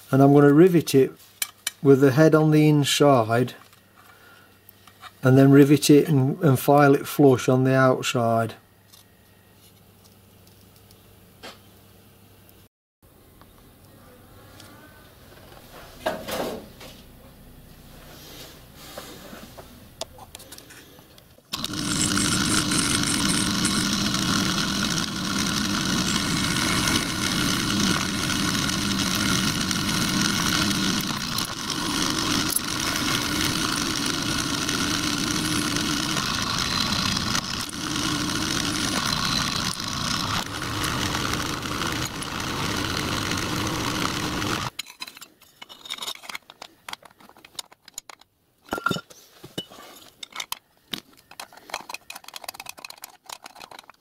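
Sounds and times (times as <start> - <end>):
metal lathe droning: 21.6 - 44.7
metal parts clicking: 44.7 - 49.0, 50.1 - 54.0.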